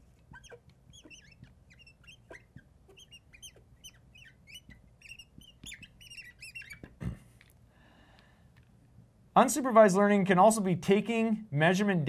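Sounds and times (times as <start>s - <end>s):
marker squeaking on glass: 0.0s - 7.2s.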